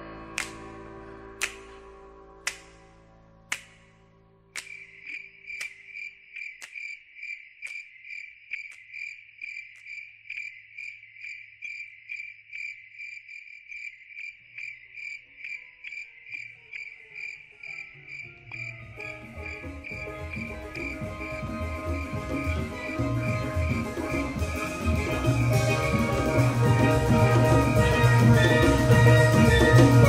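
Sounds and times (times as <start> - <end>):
music: 0.0 - 4.8, 18.0 - 30.0
cricket chirping: 4.6 - 30.0.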